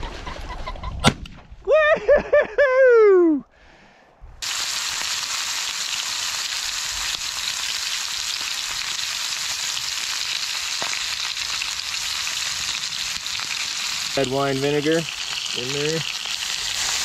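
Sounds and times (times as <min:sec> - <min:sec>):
meat sizzling in a skillet: 0:04.4 - 0:17.0.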